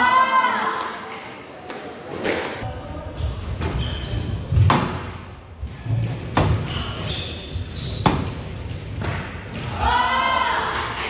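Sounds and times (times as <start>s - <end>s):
shoes squeaking on wooden floor: 6.5s - 8.5s.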